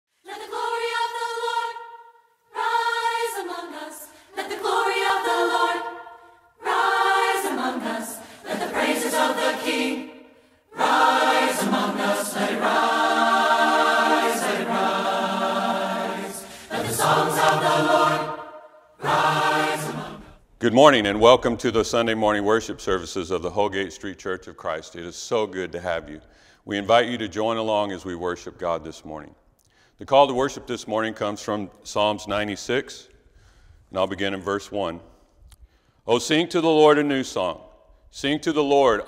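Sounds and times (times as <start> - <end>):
choir singing a cappella: 0.2 - 20.5.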